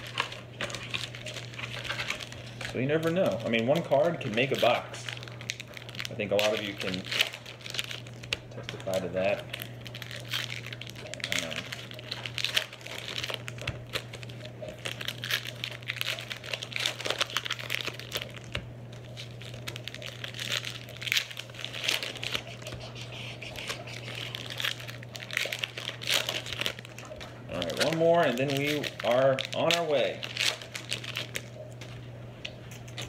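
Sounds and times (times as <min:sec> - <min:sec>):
steady low hum: 0:00.0 - 0:33.0
trading cards shuffling: 0:10.2 - 0:31.9.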